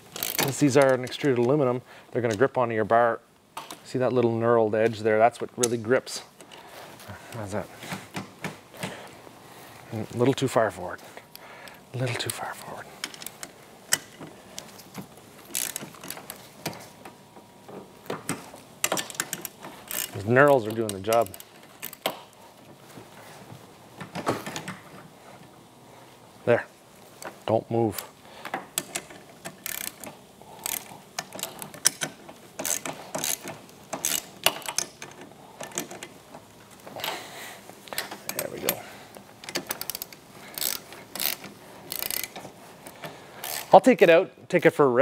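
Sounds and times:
metallic clicks and knocks: 17.7s - 22.3s, 28.5s - 36.5s.

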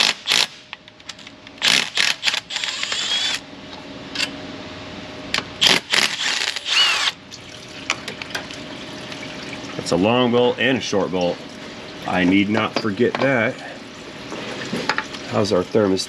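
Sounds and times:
small power tool running: 1.6s - 3.4s, 5.6s - 7.2s.

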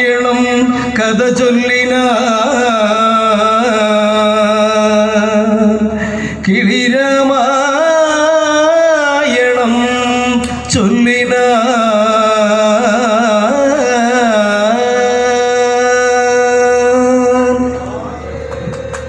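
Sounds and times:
person singing long notes: 0.0s - 19.0s
steady drone: 7.6s - 19.0s.

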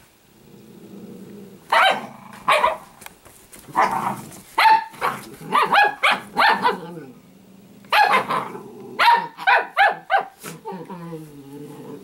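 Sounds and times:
dog growling low: 0.3s - 2.5s, 6.7s - 9.0s, 10.5s - 12.0s
dog barking in play: 1.7s - 3.0s, 3.7s - 6.9s, 7.9s - 10.6s.

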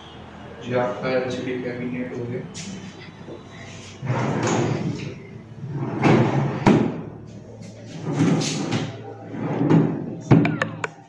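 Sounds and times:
drawers sliding on runners: 4.0s - 6.9s.

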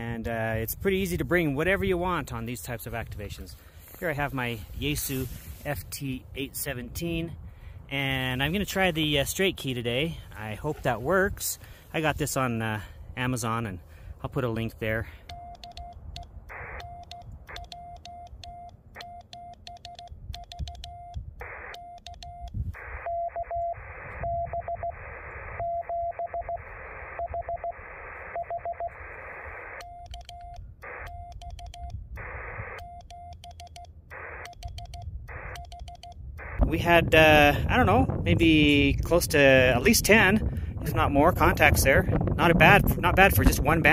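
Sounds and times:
morse code beeps: 15.1s - 37.9s
telegraph key clicks: 15.3s - 22.6s, 29.8s - 32.0s, 32.8s - 36.5s
radio receiver hiss: 22.8s - 25.8s, 26.5s - 29.8s, 32.2s - 32.8s, 34.1s - 34.7s, 35.3s - 35.6s, 36.4s - 37.9s.

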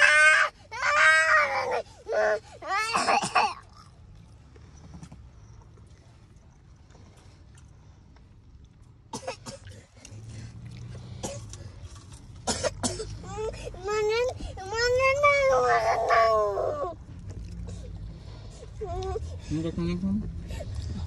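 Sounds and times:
toddler wailing: 0.0s - 3.3s, 13.8s - 17.0s.

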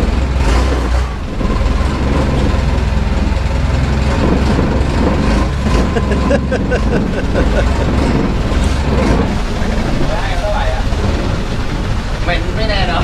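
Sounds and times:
boat engine running: 0.0s - 13.0s.

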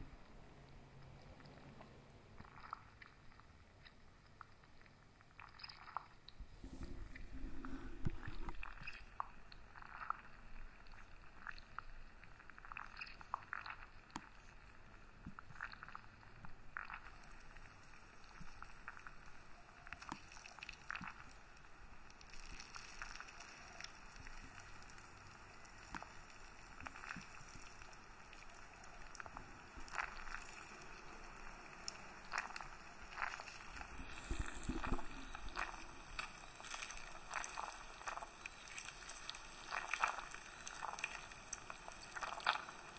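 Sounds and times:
pulp squishing wetly: 1.0s - 11.9s, 12.5s - 14.6s, 16.8s - 17.3s, 19.8s - 21.4s, 22.1s - 25.0s, 25.7s - 42.9s.

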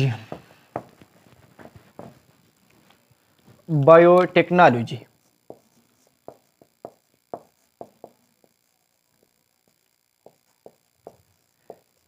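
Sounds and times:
marker tapping on whiteboard: 0.3s - 1.0s, 5.4s - 8.6s, 10.2s - 12.0s.

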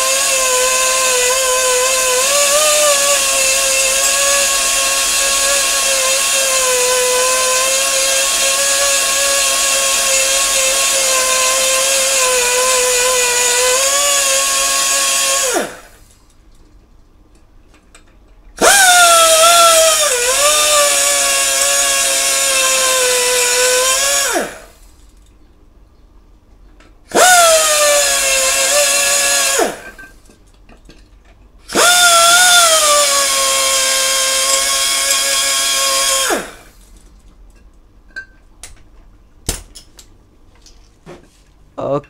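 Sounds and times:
pneumatic die grinder whining: 0.0s - 16.1s, 18.6s - 24.9s, 27.1s - 30.2s, 31.7s - 36.9s.

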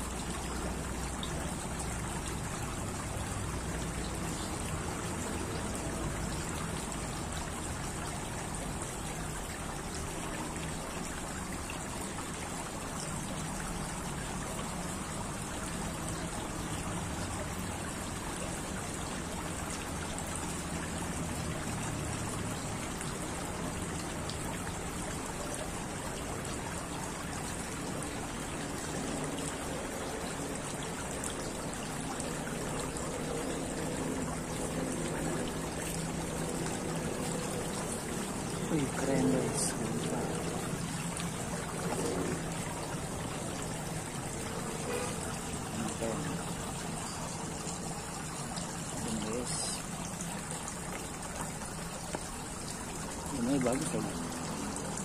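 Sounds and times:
fountain water trickling: 0.0s - 55.0s.

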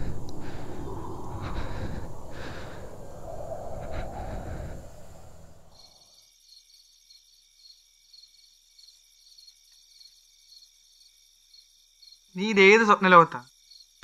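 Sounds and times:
low rumble: 0.0s - 5.8s
crickets chirping faintly: 0.0s - 14.0s.

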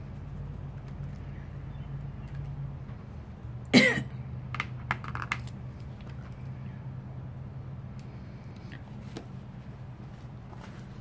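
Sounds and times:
low room hum: 0.0s - 11.0s
person coughing: 3.7s - 4.2s.

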